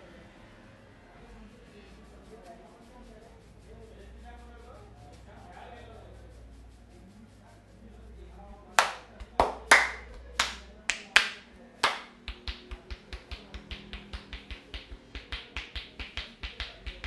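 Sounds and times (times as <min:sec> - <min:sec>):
fast light hand taps: 0:08.8 - 0:17.0
hands clapping on head: 0:08.8 - 0:17.0.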